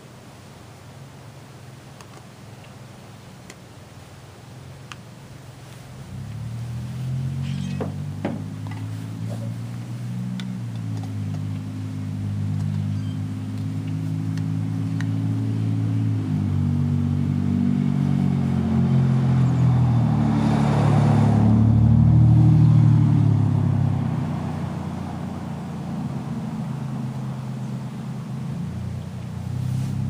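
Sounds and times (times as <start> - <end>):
vehicle engine passing by: 5.8 - 30.0.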